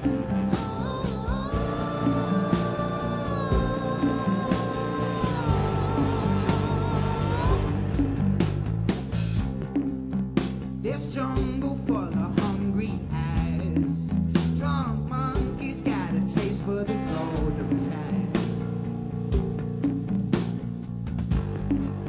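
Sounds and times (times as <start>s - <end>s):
electric guitar: 0.0s - 10.1s
drums: 0.0s - 22.0s
electric bass: 0.0s - 22.0s
woman singing backing vocal: 0.4s - 7.9s
man singing lead: 10.8s - 18.6s.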